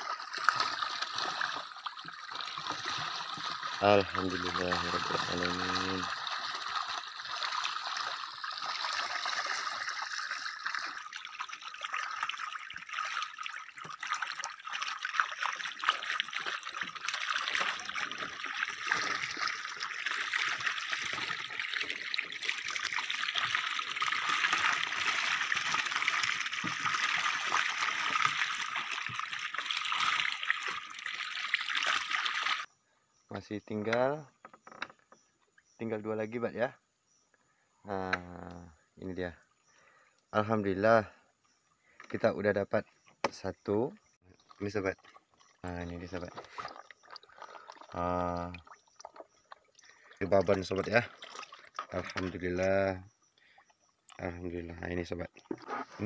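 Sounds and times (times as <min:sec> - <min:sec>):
small splashes: 0:00.0 - 0:32.7, 0:44.2 - 0:56.0
water trickling off wire mesh: 0:00.0 - 0:32.7, 0:44.3 - 0:56.0.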